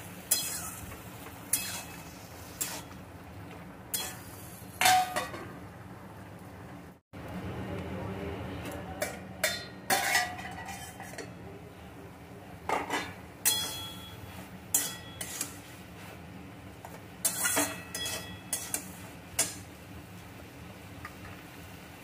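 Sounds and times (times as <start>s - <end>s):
spatula scraping and clanking on wok: 0.2s - 3.0s, 3.9s - 5.6s, 9.0s - 11.4s, 12.7s - 16.2s, 16.8s - 19.8s.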